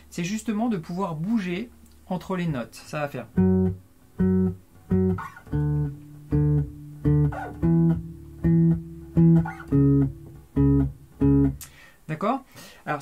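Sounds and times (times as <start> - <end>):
electric bass plucked notes: 3.3 - 11.8.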